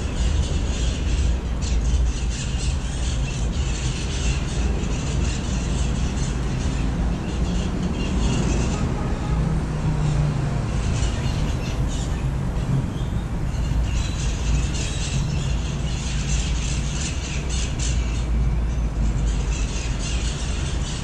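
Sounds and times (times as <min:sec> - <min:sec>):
parrots squawking: 0:00.0 - 0:09.3, 0:12.9 - 0:18.5
city traffic rumble: 0:00.0 - 0:21.0.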